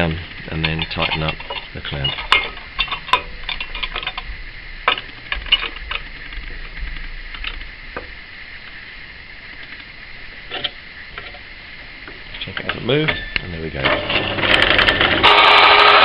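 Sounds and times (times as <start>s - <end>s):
faint high whine: 0.0s - 16.0s.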